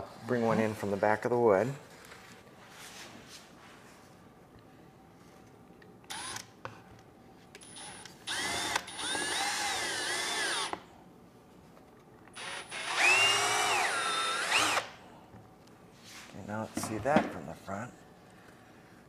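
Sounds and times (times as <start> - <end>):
cordless drill motor whining: 6.1 - 6.5, 7.6 - 10.8, 12.3 - 14.9.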